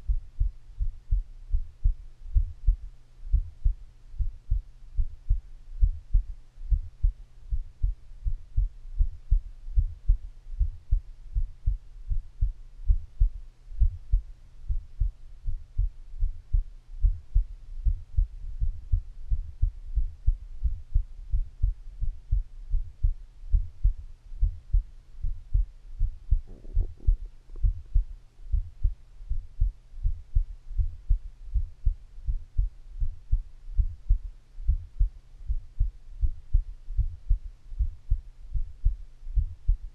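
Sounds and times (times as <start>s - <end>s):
faint steady hum: 0.0s - 39.9s
heartbeat thumps: 0.0s - 39.9s.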